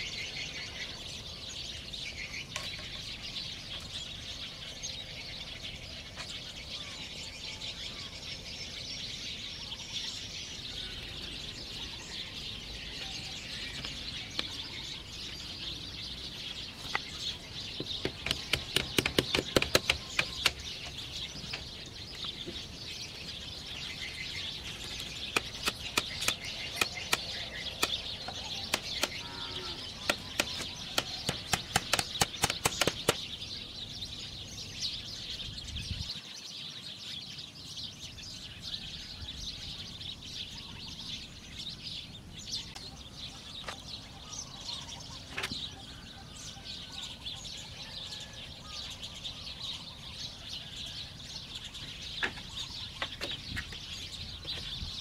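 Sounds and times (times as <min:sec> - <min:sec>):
birds chirping: 0:00.0 - 0:55.0
sharp knocks of hand tool: 0:17.8 - 0:20.6, 0:25.3 - 0:29.2, 0:30.0 - 0:33.2.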